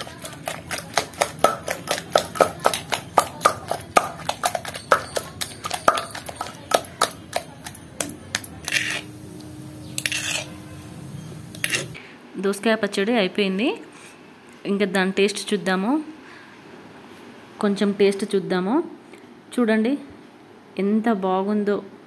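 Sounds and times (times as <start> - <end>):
pestle pounding in stone mortar: 0.0 - 9.1
steel spoon scraping paste: 0.0 - 9.1, 9.8 - 10.8, 11.6 - 12.0.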